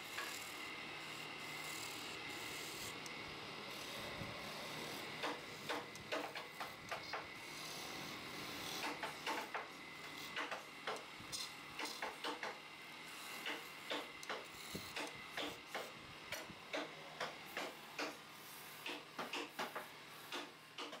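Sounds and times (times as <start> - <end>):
chisel scraping spinning wood: 0.0 - 16.0
wood lathe motor hum: 0.0 - 20.1.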